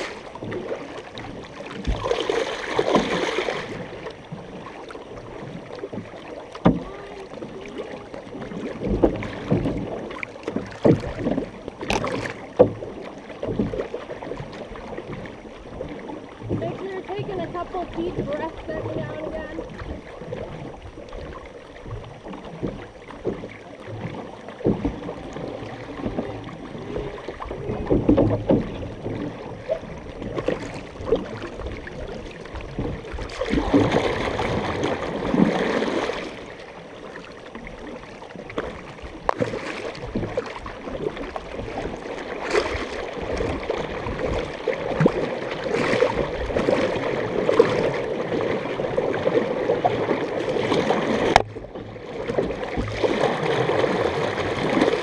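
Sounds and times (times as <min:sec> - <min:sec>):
canoe paddles through water: 0:00.0 - 0:55.0
water washing along hull: 0:00.0 - 0:55.0.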